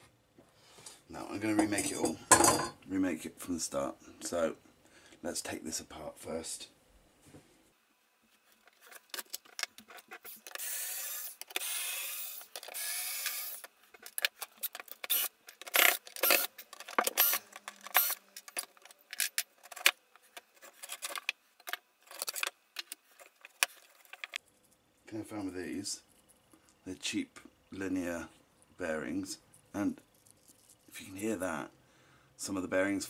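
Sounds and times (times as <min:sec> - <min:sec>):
cordless drill running: 0:10.4 - 0:13.7, 0:15.0 - 0:16.5, 0:17.1 - 0:18.3.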